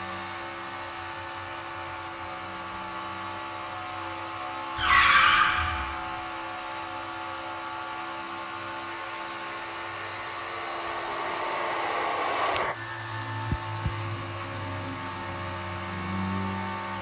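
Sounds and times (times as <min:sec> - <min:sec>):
whining engine-like drone: 0:00.0 - 0:17.0
rushing noise: 0:04.8 - 0:06.7
low hum: 0:04.8 - 0:06.9.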